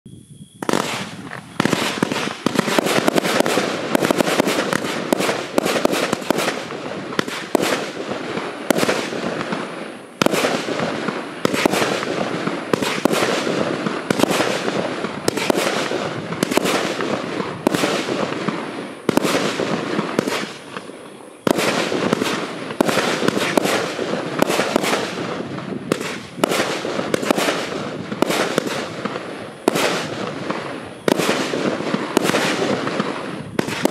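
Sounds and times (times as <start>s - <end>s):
firework shots and bursts: 0.6s - 33.9s
fireworks crackle: 0.6s - 33.9s.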